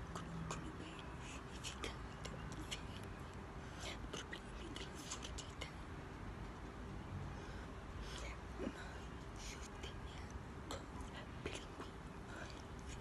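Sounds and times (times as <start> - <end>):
breathing: 3.6 - 4.0, 7.3 - 9.0.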